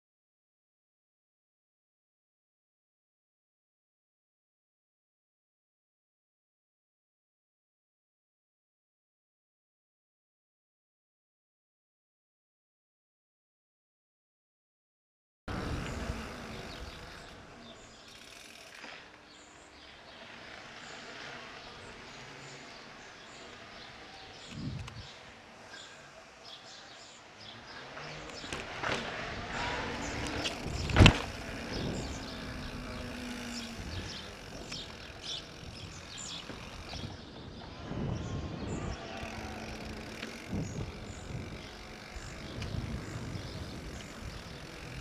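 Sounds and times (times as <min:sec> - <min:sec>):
bike tyres rolling on pavement: 0:15.5 - 0:45.0
birds chirping: 0:15.5 - 0:45.0
wind: 0:15.5 - 0:45.0.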